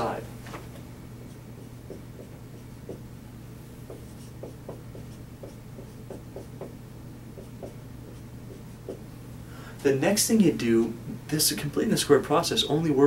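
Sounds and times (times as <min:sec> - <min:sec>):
steady low hum: 0:00.0 - 0:13.0
marker writing on whiteboard: 0:01.2 - 0:03.0, 0:03.8 - 0:06.8, 0:07.4 - 0:09.1.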